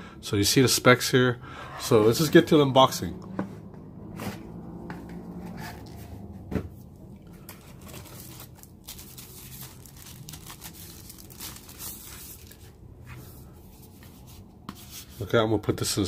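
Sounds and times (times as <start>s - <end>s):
plastic sleeve crinkling: 7.4s - 13.0s.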